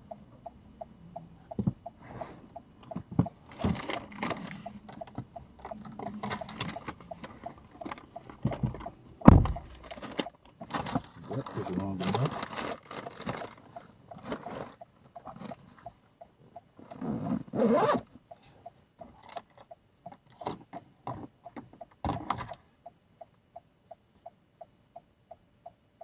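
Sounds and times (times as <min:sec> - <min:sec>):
paper bags rustling: 0:09.8 - 0:13.6
zipper pulled closed: 0:17.0 - 0:18.0.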